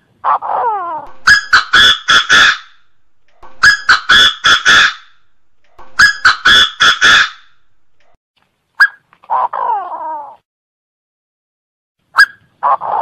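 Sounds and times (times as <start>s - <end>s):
bird calling: 0.5s - 7.7s.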